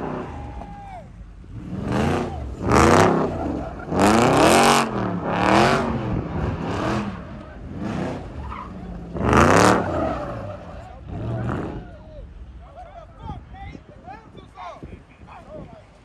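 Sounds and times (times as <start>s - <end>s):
car engine revving: 0.0s - 12.6s
tires screeching: 0.0s - 14.1s.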